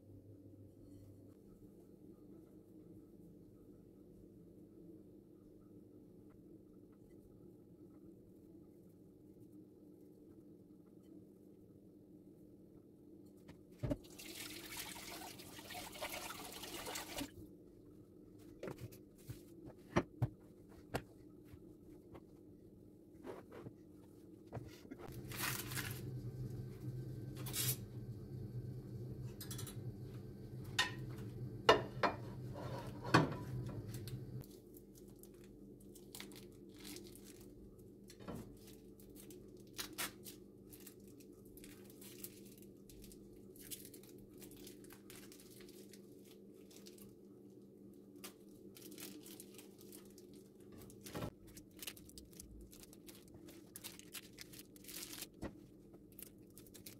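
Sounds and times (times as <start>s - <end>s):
low hum: 21.3s - 34.4s
plastic casings crinkling and tearing: 48.2s - 55.4s.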